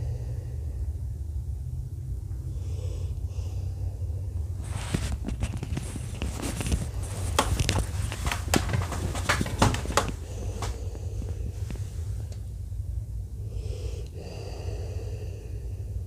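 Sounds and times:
low rumble: 0:00.0 - 0:16.0
dog breathing heavily: 0:02.4 - 0:12.4
crackling clicks and rustles: 0:04.6 - 0:12.5.

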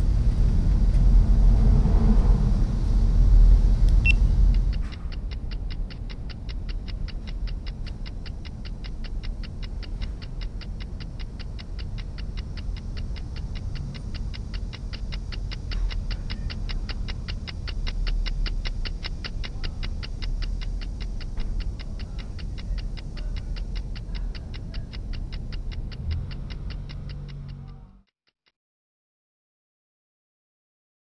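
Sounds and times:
loud rumble: 0:00.0 - 0:05.2
low steady hum: 0:00.0 - 0:28.0
fast clock-like ticking: 0:03.9 - 0:28.0.

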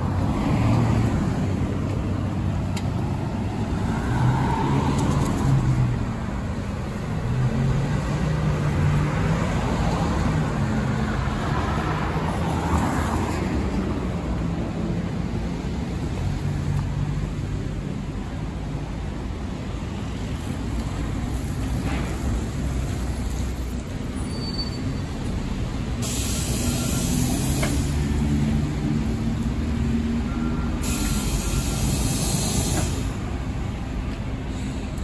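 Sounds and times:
bus engine rumbling: 0:00.0 - 0:35.0
compressed air hiss: 0:25.9 - 0:28.2, 0:30.8 - 0:33.3.

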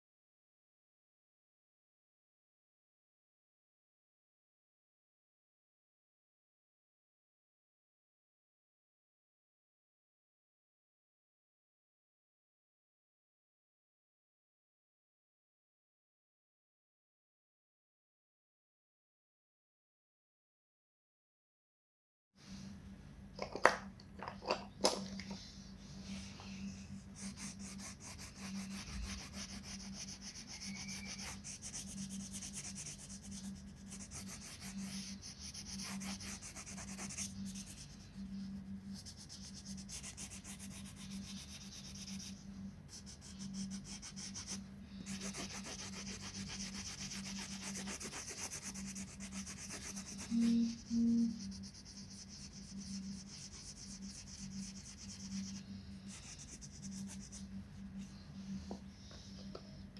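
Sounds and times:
crayon scribbling on paper: 0:27.0 - 0:38.0, 0:38.9 - 0:57.5.

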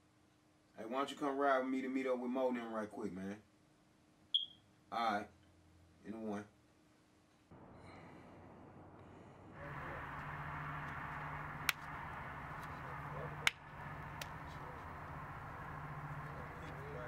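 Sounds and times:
low background hum: 0:07.2 - 0:17.0
hand slaps: 0:11.6 - 0:11.9, 0:13.4 - 0:14.6.

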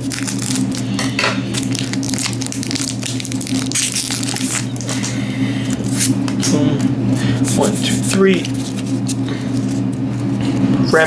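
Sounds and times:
foil wrapper crinkling: 0:00.0 - 0:06.5, 0:08.0 - 0:09.9.

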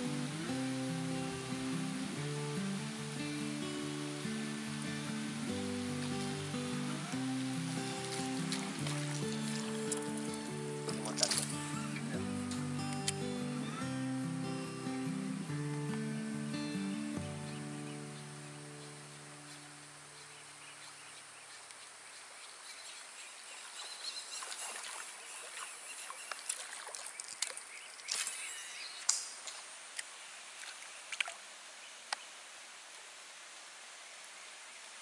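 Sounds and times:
guitar background music: 0:00.0 - 0:20.4
faint outdoor ambience: 0:00.0 - 0:35.0
lure splashing on water: 0:06.0 - 0:13.3, 0:24.4 - 0:31.4.

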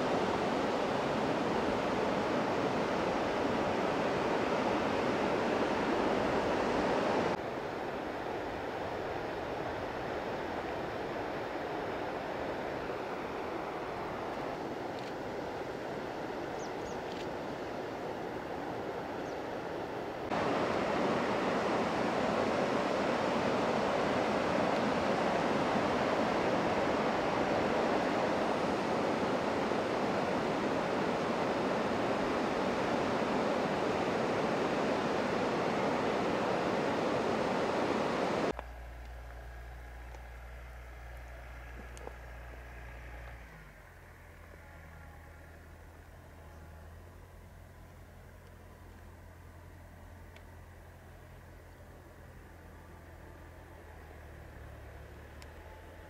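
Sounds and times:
river water rushing over rapids: 0:00.0 - 0:16.6, 0:17.3 - 0:38.6.

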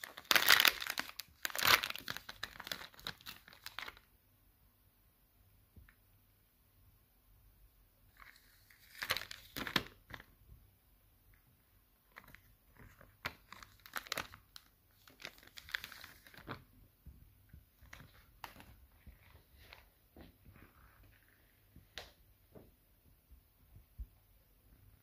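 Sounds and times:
plastic wrapper crinkling and tearing: 0:00.0 - 0:04.1, 0:08.1 - 0:10.3, 0:12.0 - 0:16.7, 0:17.8 - 0:19.9.

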